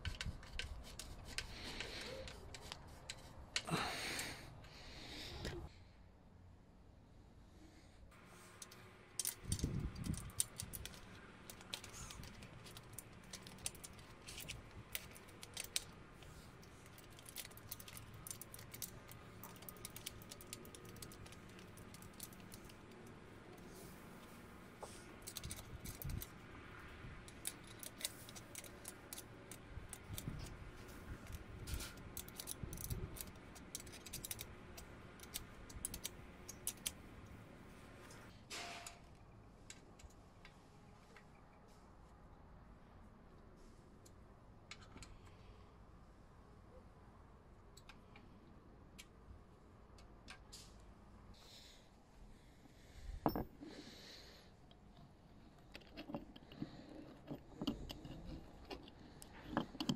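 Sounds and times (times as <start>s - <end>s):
spanner clicking and rattling: 31.2s - 37.0s, 55.7s - 59.9s.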